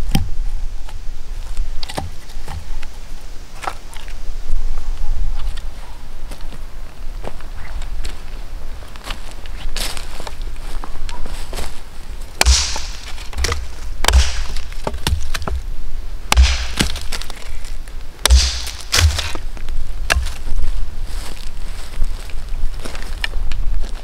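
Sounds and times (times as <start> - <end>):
axe striking wood: 12.4 - 15.7, 16.3 - 17.4, 18.2 - 19.4, 20.1 - 20.4
dry wood cracking: 12.4 - 15.7, 16.3 - 20.6
dull thud into stump: 12.4 - 15.7, 16.3 - 17.3, 18.2 - 19.4.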